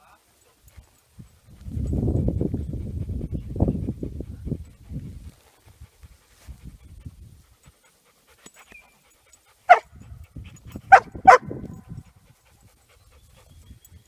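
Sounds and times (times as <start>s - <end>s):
dog panting: 0.2s - 14.0s
dog barking: 9.7s - 9.9s, 10.9s - 11.8s.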